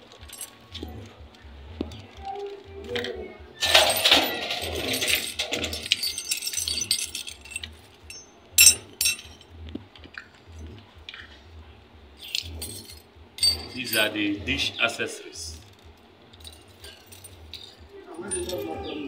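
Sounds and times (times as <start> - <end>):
metal bolts and nuts clinking: 0.0 - 1.1, 3.0 - 9.5, 12.2 - 14.8, 15.5 - 19.0.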